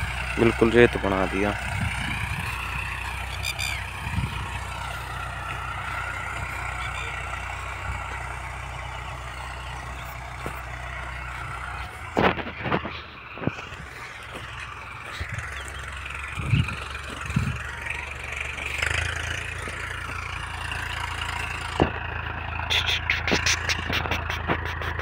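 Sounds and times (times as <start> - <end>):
distant tractor engine running: 0.0 - 25.0.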